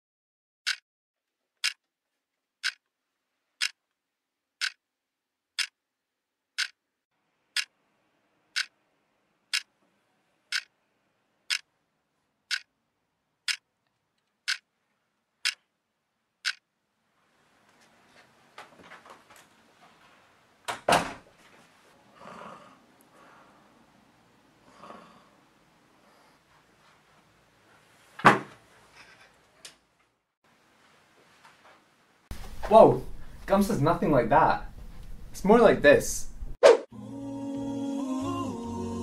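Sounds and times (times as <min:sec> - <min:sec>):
clock ticking: 0:01.6 - 0:01.8, 0:02.6 - 0:02.8, 0:03.6 - 0:03.8, 0:04.6 - 0:04.8, 0:05.6 - 0:05.8, 0:06.6 - 0:06.8, 0:08.5 - 0:08.7, 0:09.5 - 0:09.7, 0:10.5 - 0:10.7, 0:11.5 - 0:11.7, 0:12.5 - 0:12.7, 0:13.4 - 0:13.6, 0:14.4 - 0:14.6, 0:15.4 - 0:15.7, 0:16.4 - 0:16.7.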